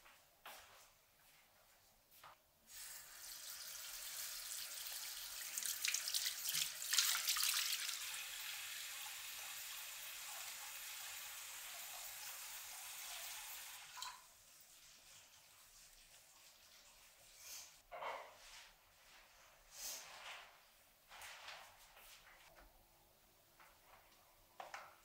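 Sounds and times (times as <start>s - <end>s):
tap water running into basin: 2.7s - 17.3s.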